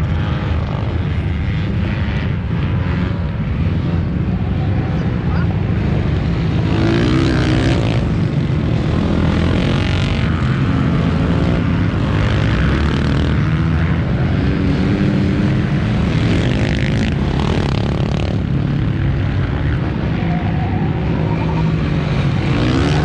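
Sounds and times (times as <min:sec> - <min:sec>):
racing motorcycles revving: 0:00.0 - 0:23.0.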